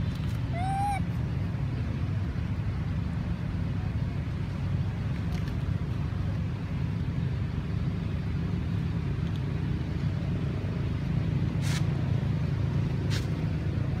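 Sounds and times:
low outdoor rumble: 0.0s - 14.0s
short hissy rustles: 11.6s - 12.0s, 13.1s - 13.4s.

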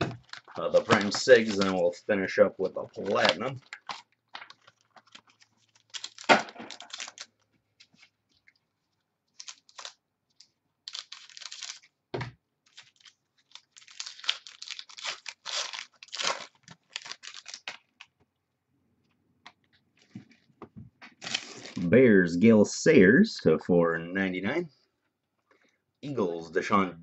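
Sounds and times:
packaging tearing and crinkling: 0.0s - 2.0s, 2.7s - 7.4s, 9.3s - 11.9s, 12.7s - 18.1s, 21.2s - 21.9s.

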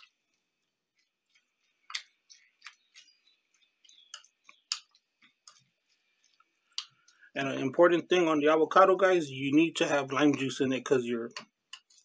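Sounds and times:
wet squelches and clicks: 0.0s - 7.4s, 11.3s - 12.0s.

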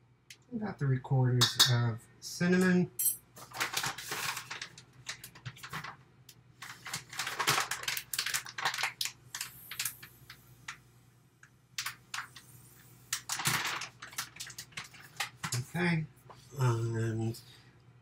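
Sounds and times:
paper pouch crinkling: 3.4s - 6.0s, 6.6s - 10.0s, 13.1s - 15.4s.

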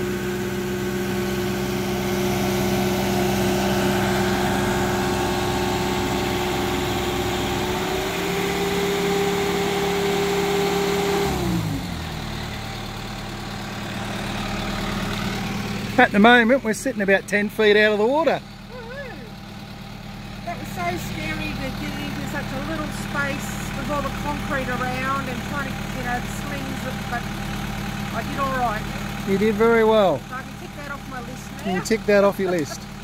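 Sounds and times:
lift engine running under load: 0.0s - 33.0s.

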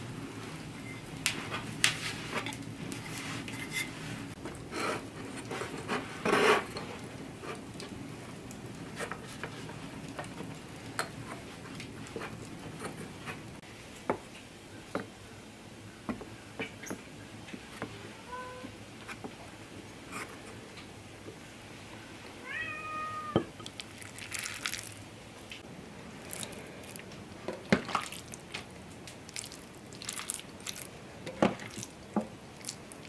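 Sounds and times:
handling of dough: 23.6s - 25.6s, 26.2s - 33.0s.

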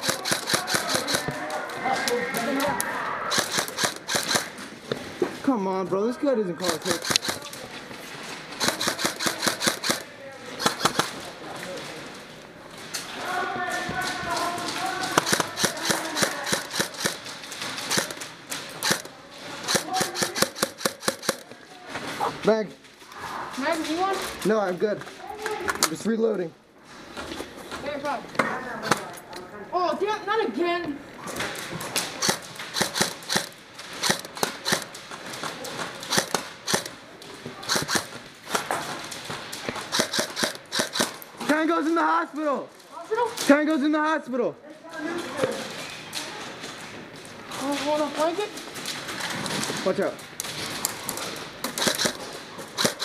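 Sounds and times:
airsoft guns firing: 0.0s - 2.6s, 3.3s - 4.7s, 6.6s - 7.6s, 8.5s - 11.3s, 13.7s - 21.6s, 31.5s - 37.0s, 37.6s - 41.6s, 50.6s - 53.0s.

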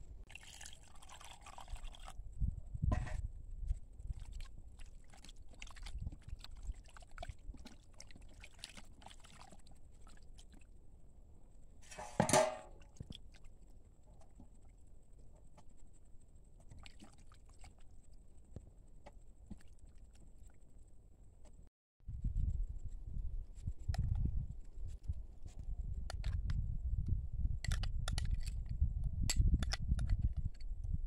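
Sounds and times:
hands squelching meat in water: 4.1s - 10.6s.

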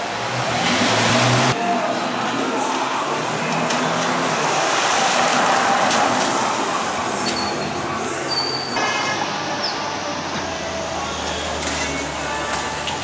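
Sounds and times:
car engine pulling away: 0.1s - 1.6s.

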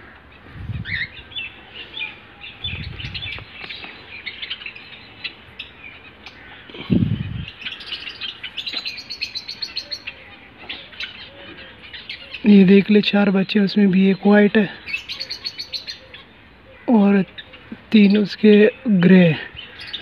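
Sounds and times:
sparrows chirping: 0.0s - 20.0s.

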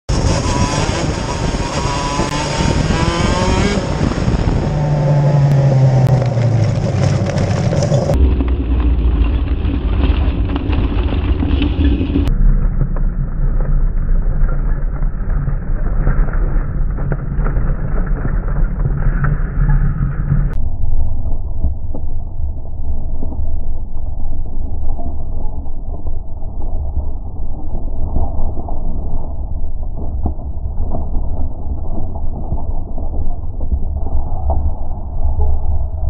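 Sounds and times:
kart two-stroke engine revving: 0.1s - 8.2s
low rumble: 0.1s - 36.0s.

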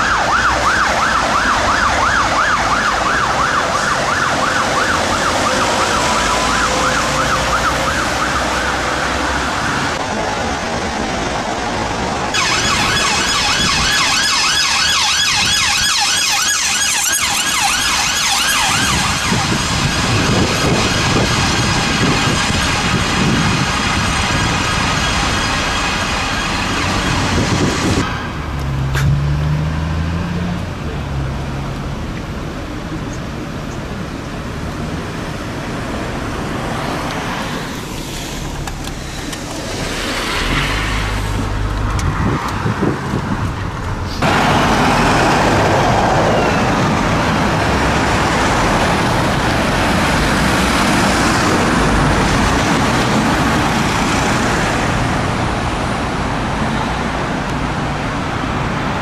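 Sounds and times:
cars driving past: 0.0s - 14.4s, 15.4s - 59.0s
engine speeding up: 17.5s - 31.6s.

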